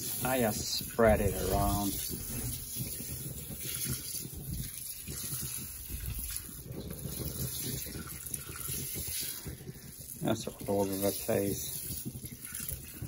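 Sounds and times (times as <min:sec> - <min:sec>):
rice pouring into broth: 0:00.0 - 0:13.0
low rumble: 0:00.5 - 0:03.6.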